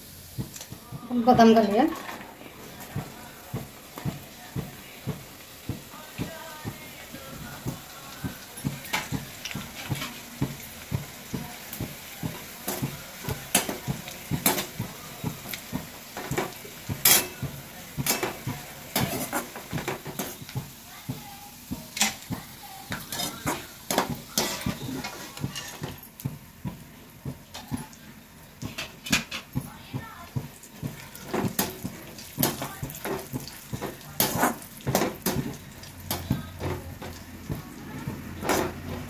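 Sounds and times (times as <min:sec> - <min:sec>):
faint sizzle: 0:00.0 - 0:39.0
metal spoon scraping a pan: 0:16.2 - 0:20.5, 0:22.9 - 0:26.0, 0:31.1 - 0:35.5, 0:38.4 - 0:39.0.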